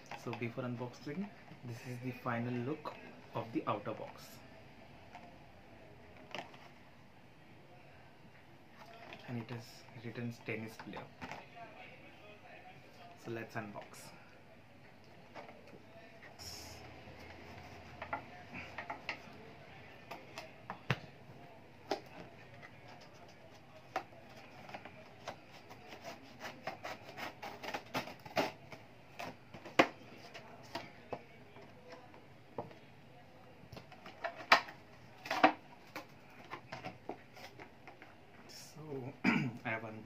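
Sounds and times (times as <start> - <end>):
scissors cutting cardboard: 22.9 - 30.8.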